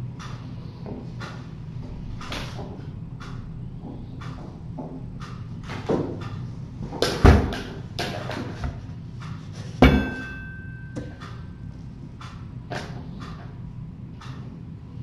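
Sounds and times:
metal ringing: 9.8 - 11.7.

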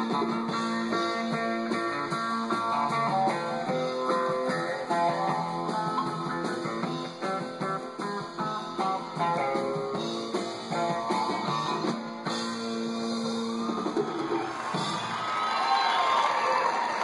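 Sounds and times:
country band music: 0.0 - 16.2
crowd cheering with whoops: 13.0 - 17.0.

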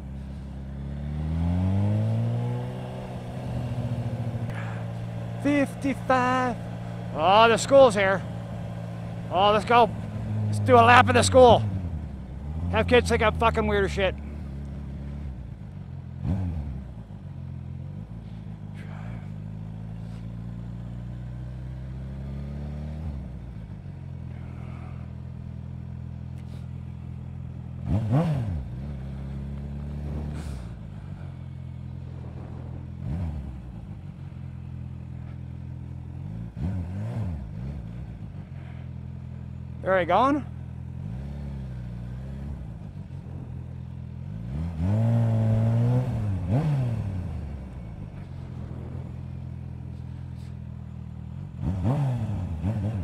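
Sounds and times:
motorcycle engine throttle blips: 0.0 - 53.0.

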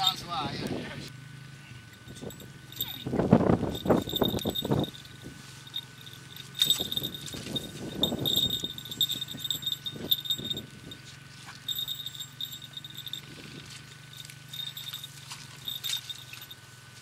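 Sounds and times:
small bells jingling: 1.9 - 16.8.

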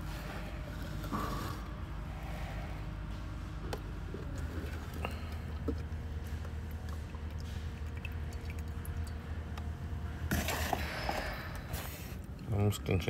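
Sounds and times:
steady low hum: 0.0 - 13.0
oil trickling into plastic jug: 4.2 - 9.4.

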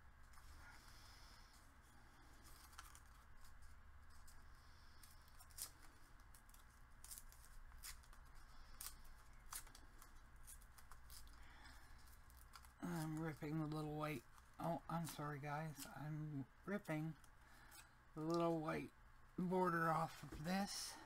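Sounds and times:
paper clicks and rustles: 2.2 - 15.2.

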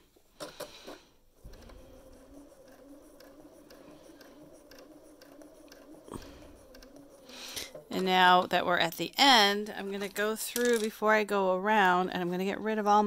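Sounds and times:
sewing machine running: 1.4 - 9.6.

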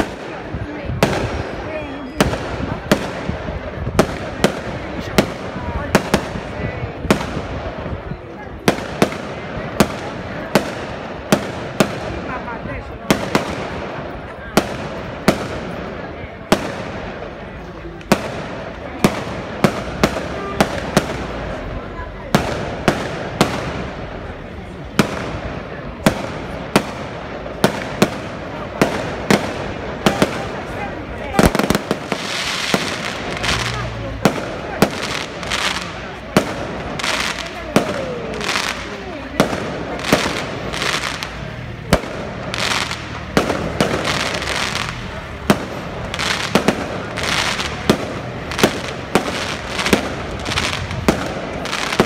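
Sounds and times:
fireworks bursting with sharp bangs: 0.0 - 52.0
steady background noise: 0.0 - 52.0.

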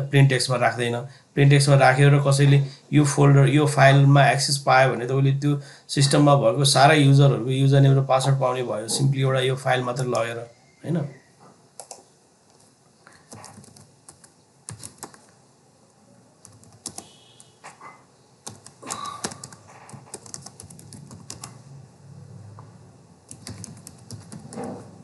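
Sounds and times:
keyboard typing: 11.8 - 15.4, 16.4 - 17.8, 18.4 - 21.6, 23.3 - 25.0.

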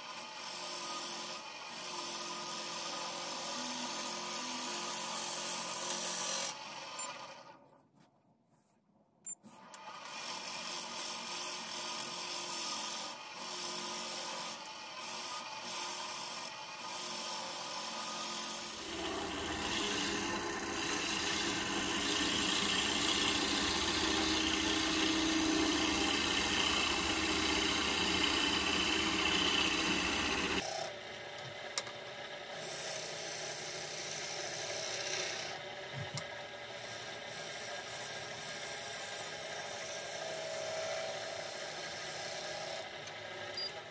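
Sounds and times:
gouge scraping wood on a lathe: 10.0 - 30.7, 36.7 - 42.9.

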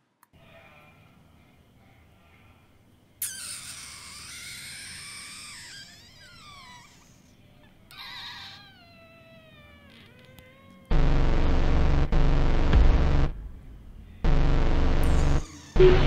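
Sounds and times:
high-pitched wailing cries: 3.2 - 7.3, 7.9 - 10.9.

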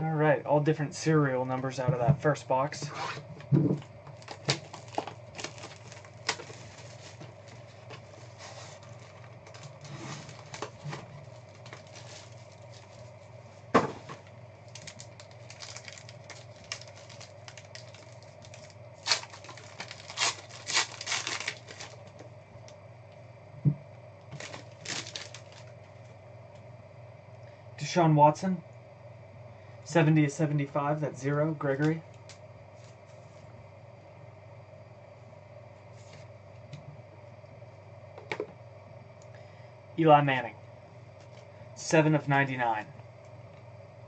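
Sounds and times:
plastic wrap crinkling and tearing: 4.1 - 13.1, 14.6 - 22.2, 24.3 - 25.8.

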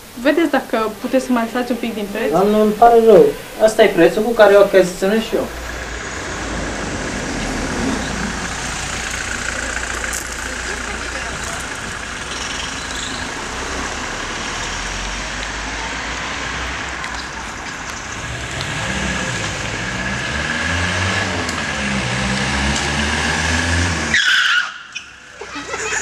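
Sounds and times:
car engine revving: 0.0 - 26.0
tyre squeal: 24.1 - 25.5.

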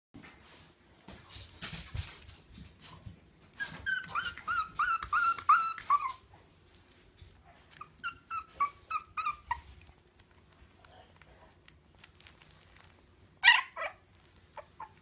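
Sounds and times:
puppy whimpering: 3.5 - 6.4, 7.4 - 10.5, 13.4 - 15.0.

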